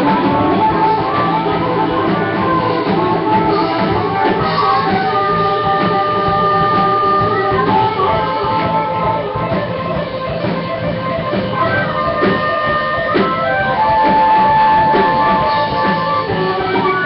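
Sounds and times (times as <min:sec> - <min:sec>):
live rock band playing: 0:00.0 - 0:17.0.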